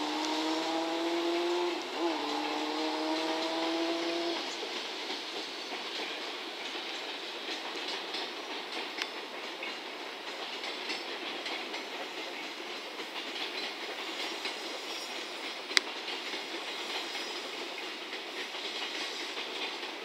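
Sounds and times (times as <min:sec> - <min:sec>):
freight wagon wheels on rails: 0:00.0 - 0:20.0.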